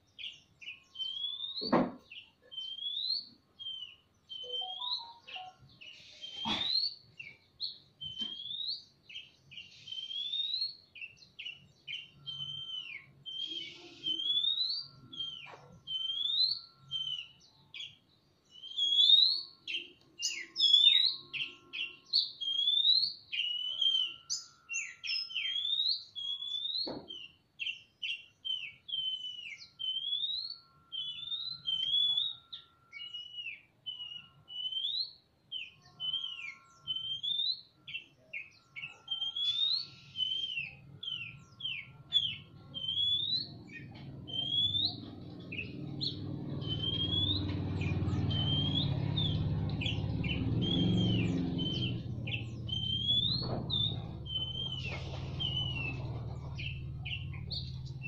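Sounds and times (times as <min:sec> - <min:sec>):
birds singing whistled notes: 0:00.0 - 0:58.0
knock: 0:01.6 - 0:02.1
low rumbling noise: 0:43.5 - 0:58.0.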